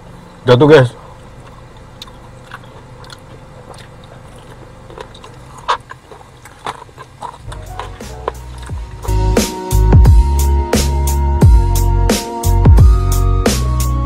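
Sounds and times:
biting and chewing chicken: 1.0s - 9.3s
music: 7.5s - 14.0s.

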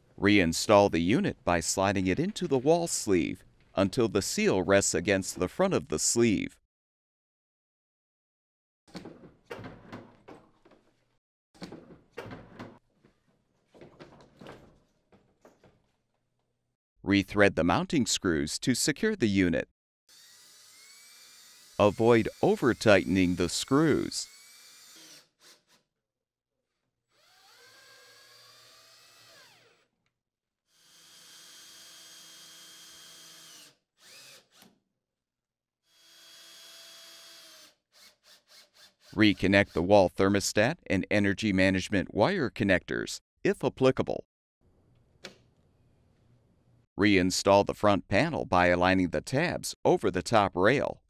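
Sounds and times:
cordless power drill driving screws: 20.1s - 25.8s, 27.2s - 29.9s, 30.8s - 34.7s, 35.9s - 39.2s.

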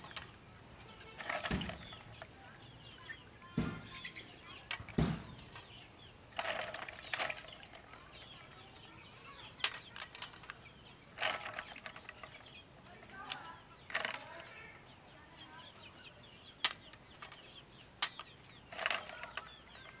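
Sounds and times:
water sloshing in a basin: 0.0s - 2.6s, 3.4s - 14.5s, 18.6s - 20.0s
faint birds chirping: 0.0s - 20.0s
shells rattling: 1.0s - 2.3s, 6.3s - 8.2s, 9.5s - 12.5s, 13.2s - 14.5s, 18.0s - 20.0s
snail shells clicking on metal: 9.3s - 14.7s, 16.5s - 20.0s.

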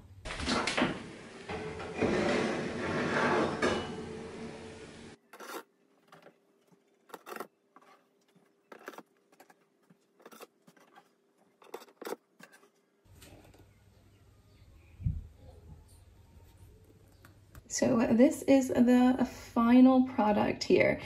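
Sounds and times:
oven hum: 0.0s - 5.2s
metal spatula scraping baking tray: 1.4s - 5.7s, 10.2s - 12.7s.

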